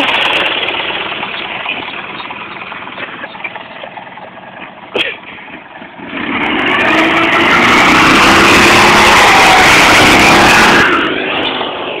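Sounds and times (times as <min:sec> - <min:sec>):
buggy engine revving: 0:00.0 - 0:12.0
loud rushing noise: 0:06.0 - 0:12.0.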